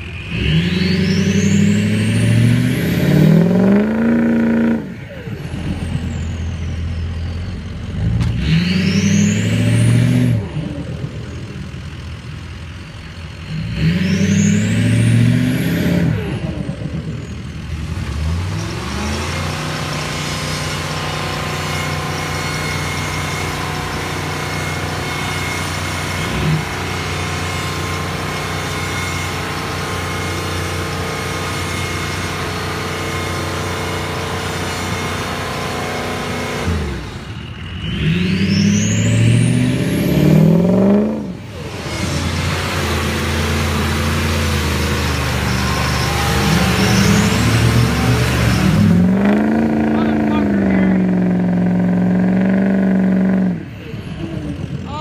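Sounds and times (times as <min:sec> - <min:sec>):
truck engine revving: 0:00.0 - 0:55.0
short rising whistle: 0:44.3 - 0:49.4.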